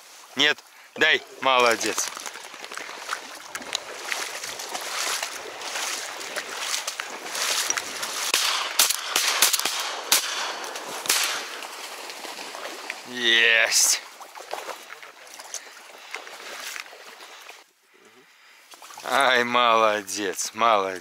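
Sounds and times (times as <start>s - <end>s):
water splashing from wading: 0.0s - 17.7s, 18.6s - 19.4s.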